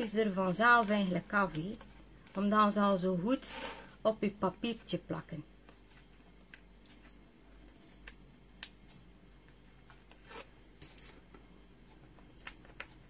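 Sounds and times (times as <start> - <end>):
paper rustling: 10.2 - 11.4.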